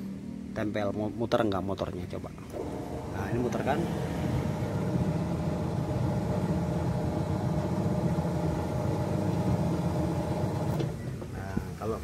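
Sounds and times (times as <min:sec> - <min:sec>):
washing machine motor humming: 0:02.5 - 0:11.8.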